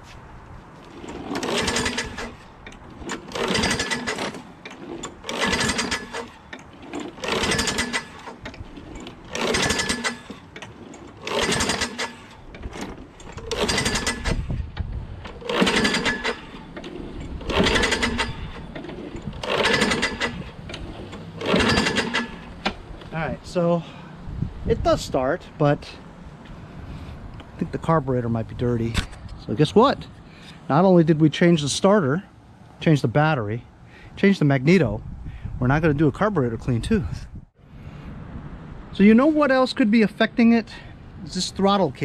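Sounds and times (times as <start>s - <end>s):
lawnmower engine running unevenly: 0.8s - 14.5s, 15.2s - 22.9s.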